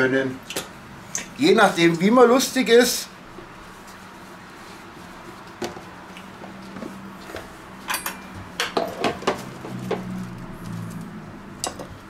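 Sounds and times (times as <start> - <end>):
cutlery clatter: 7.9 - 9.4.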